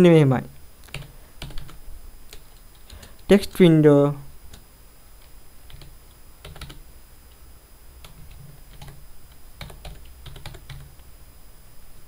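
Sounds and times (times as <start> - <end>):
keyboard typing clicks: 0.9 - 3.3, 5.7 - 7.4, 8.0 - 11.0.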